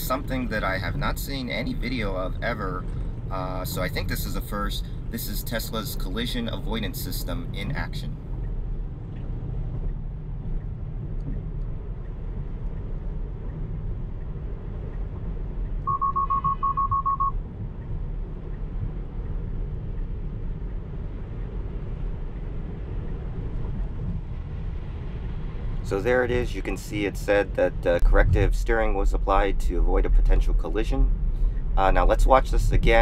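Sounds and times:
road and tyre rumble: 0:00.0 - 0:33.0
rapid high beeps: 0:15.9 - 0:17.4.

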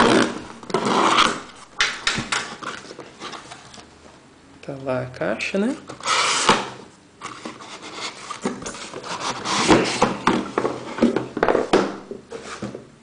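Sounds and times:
cardboard boxes scraping: 0:00.0 - 0:01.6, 0:06.0 - 0:06.6, 0:07.2 - 0:11.4, 0:12.3 - 0:12.8
cardboard rustling and knocks: 0:08.4 - 0:12.9.

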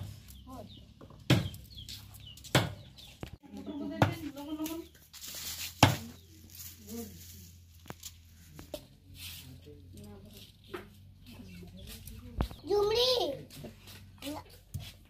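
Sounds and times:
knife chopping chicken on wood: 0:01.2 - 0:01.6, 0:02.5 - 0:02.8.

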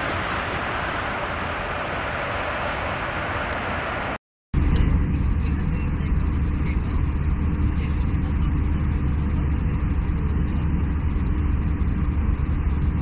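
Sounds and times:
jet airliner cabin noise: 0:00.0 - 0:13.0
deep even hum: 0:04.6 - 0:13.0.

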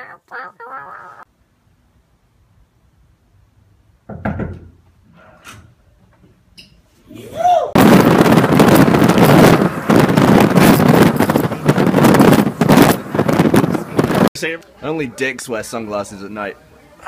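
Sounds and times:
wind buffeting microphone: 0:07.8 - 0:14.3.

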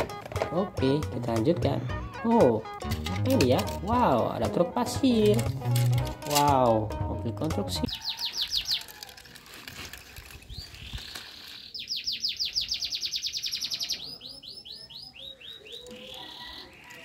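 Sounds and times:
bird singing: 0:07.8 - 0:08.9, 0:10.5 - 0:17.0.

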